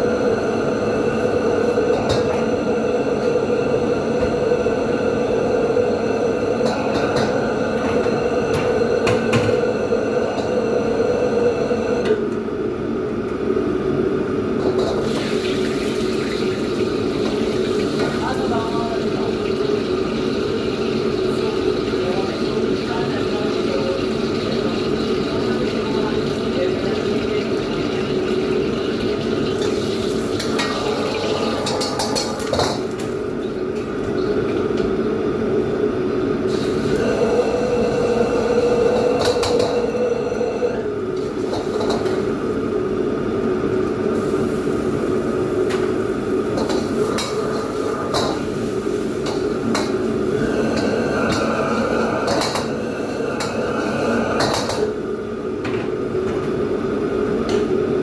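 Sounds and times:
extractor hood running: 14.4s - 34.7s.

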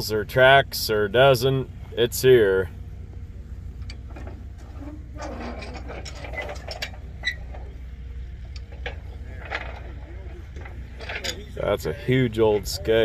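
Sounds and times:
metallic clicks and knocks of machinery: 3.8s - 7.8s, 8.4s - 11.8s.

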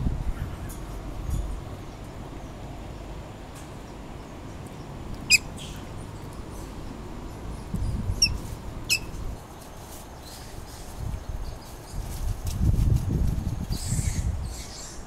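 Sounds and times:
low steady rumble: 0.0s - 9.5s.

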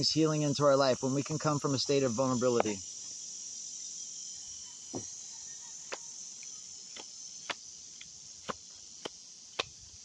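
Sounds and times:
insects trilling: 0.0s - 10.0s.

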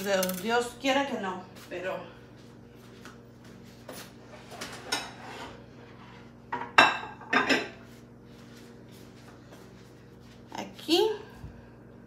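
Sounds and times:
steady low hum: 0.0s - 12.0s
dishes and cutlery clattering: 6.5s - 7.8s.

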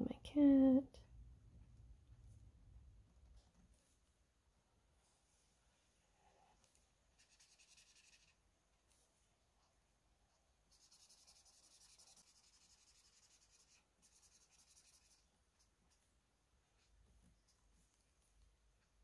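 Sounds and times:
marker scratching on paper: 7.2s - 8.4s, 10.7s - 16.0s.

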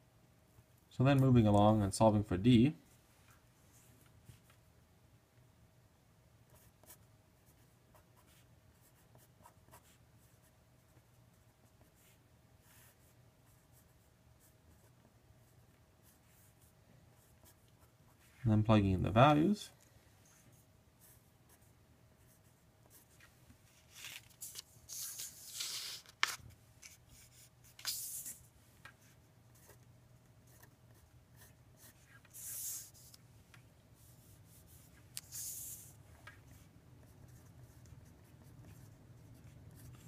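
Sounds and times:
faint steady hum: 0.0s - 40.0s
marker scratching on paper: 27.1s - 28.4s, 30.5s - 33.2s, 34.0s - 35.9s, 36.5s - 40.0s.

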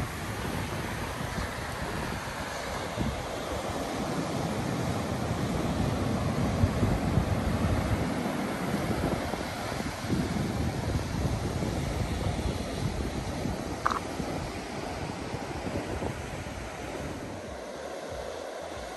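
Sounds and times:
surf washing over rocky shore: 0.0s - 18.9s
wind rumbling on microphone: 0.0s - 18.9s.

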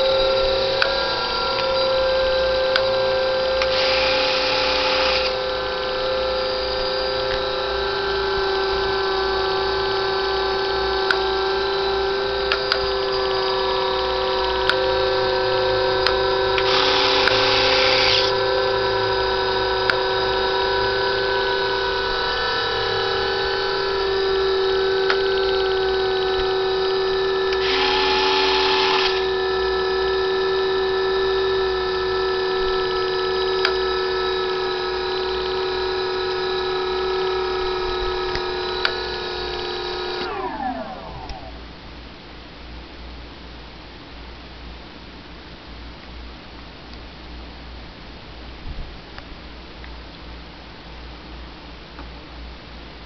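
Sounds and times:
electric motors whining: 0.0s - 41.7s.

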